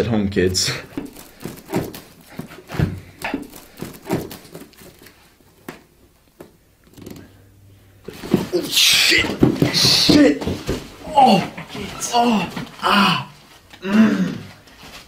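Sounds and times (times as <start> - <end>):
knife cutting through cardboard box: 0.8 - 4.9.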